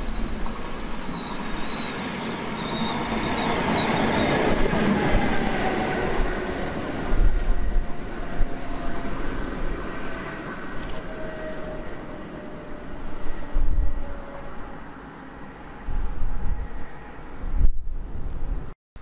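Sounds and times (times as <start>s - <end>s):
high wheel squeal: 0.0s - 4.4s
wheels rumbling on rails: 0.0s - 14.8s.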